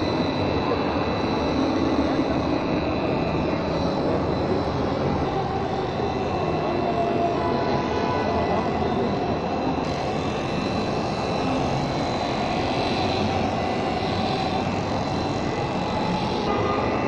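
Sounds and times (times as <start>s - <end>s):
orbital polisher running: 9.8s - 16.5s.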